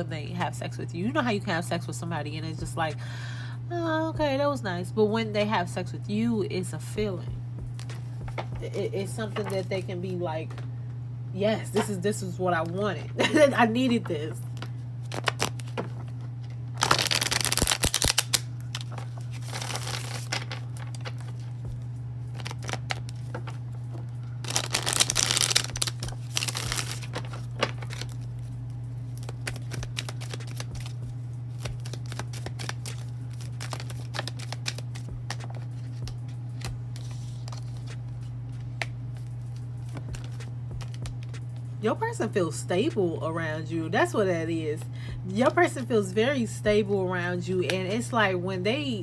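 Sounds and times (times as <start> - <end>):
steady low hum: 0.0 - 49.0
cards being shuffled: 7.7 - 8.6, 9.2 - 9.7, 13.9 - 41.6.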